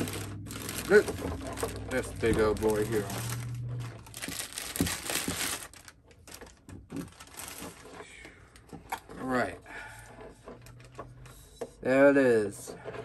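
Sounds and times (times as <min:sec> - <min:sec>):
plastic bags crinkling: 0:00.0 - 0:08.0.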